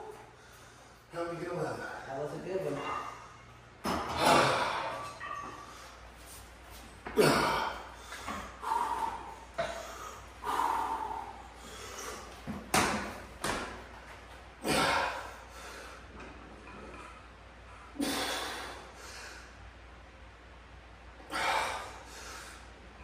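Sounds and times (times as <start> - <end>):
forceful exhalations and grunts: 3.8 - 5.9, 7.0 - 12.5, 14.6 - 16.1, 17.9 - 19.5, 21.3 - 22.6
man breathing hard: 7.2 - 12.5, 14.6 - 16.1, 18.0 - 19.6, 21.3 - 22.8.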